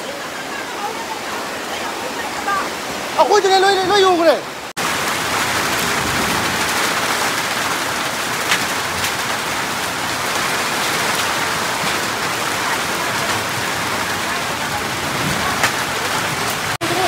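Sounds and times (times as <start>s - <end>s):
hail and rain falling: 0.0s - 17.0s
hailstones ticking: 4.8s - 17.0s.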